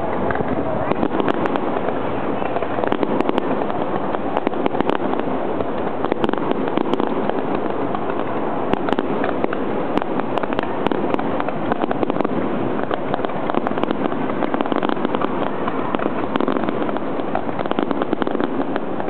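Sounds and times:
fireworks crackling and popping: 0:00.0 - 0:19.0.

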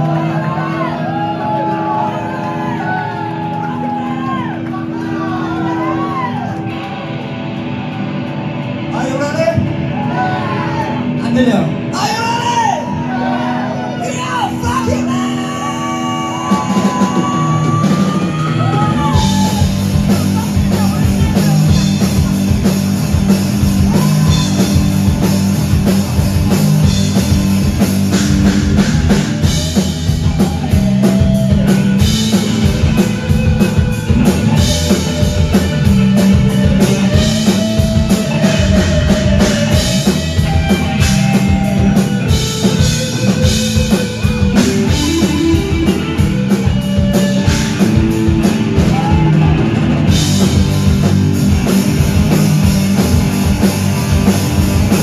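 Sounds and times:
live rock band playing: 0:00.0 - 0:55.0
electric guitar lead line sliding: 0:12.9 - 0:55.0
heavy drums and cymbals: 0:16.3 - 0:55.0.

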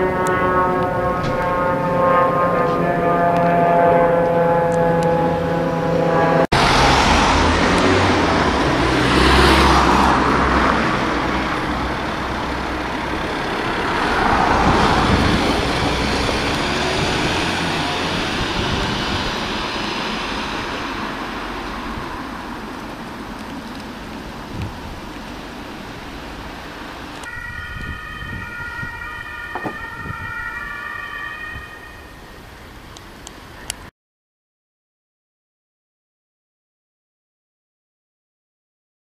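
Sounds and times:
van engine driving away: 0:00.0 - 0:27.1.

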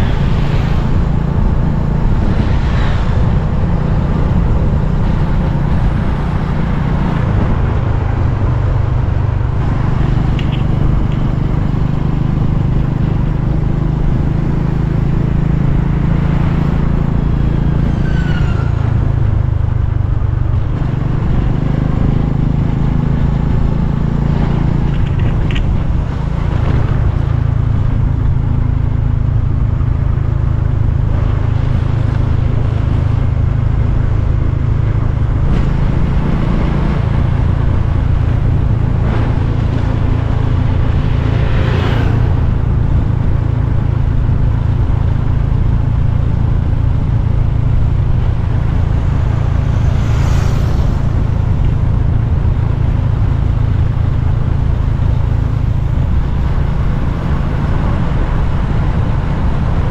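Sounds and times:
wind whooshes: 0:00.0 - 0:17.8, 0:31.0 - 0:45.0, 0:46.3 - 0:54.2
motorcycle engine and wind rumble: 0:00.0 - 0:59.9.

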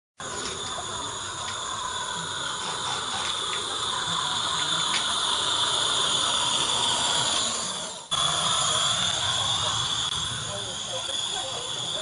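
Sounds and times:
steam locomotive hissing: 0:00.2 - 0:12.0
wheels clicking over rail joints: 0:02.6 - 0:05.2.

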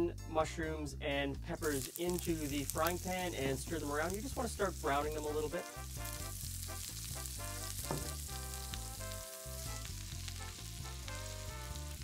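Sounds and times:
background music with bass line: 0:00.0 - 0:12.0
vegetables sizzling in fat: 0:01.6 - 0:12.0
vegetables tipped into pan: 0:07.8 - 0:08.3.

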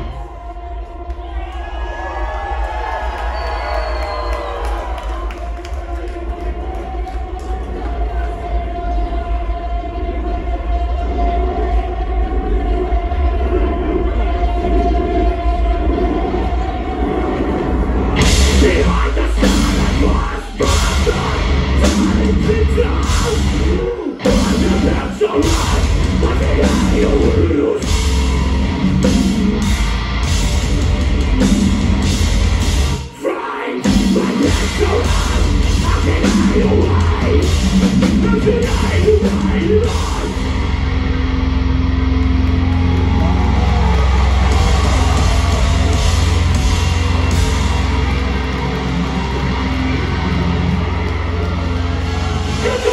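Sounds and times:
bass guitar: 0:05.3 - 0:33.1, 0:33.8 - 0:52.9
heavy distorted guitars: 0:05.3 - 0:52.9
person singing: 0:18.2 - 0:28.4, 0:32.9 - 0:40.9
pounding drums: 0:42.2 - 0:52.9.

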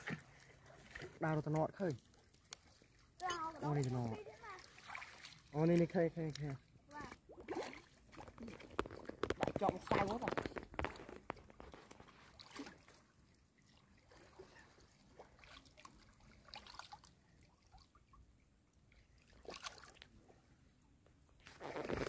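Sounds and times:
small splashes: 0:00.0 - 0:20.4
muddy water sloshing: 0:00.0 - 0:20.6.

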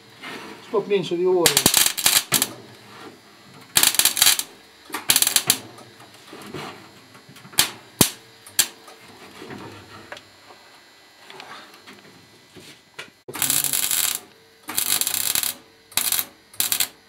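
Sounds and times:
welding arc crackling: 0:01.4 - 0:02.6, 0:03.7 - 0:05.6, 0:07.6 - 0:08.8, 0:13.3 - 0:17.0
sharp single cracks: 0:01.5 - 0:02.5, 0:07.6 - 0:08.8.

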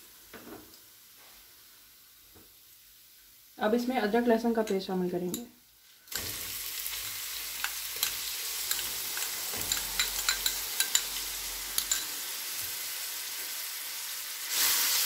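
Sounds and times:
paste sizzling in hot oil: 0:05.6 - 0:15.0.

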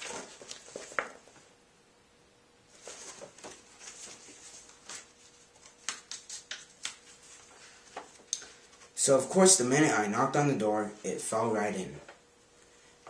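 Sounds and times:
paper rustling: 0:00.0 - 0:01.3, 0:02.7 - 0:09.0
page flicks: 0:04.8 - 0:07.1.

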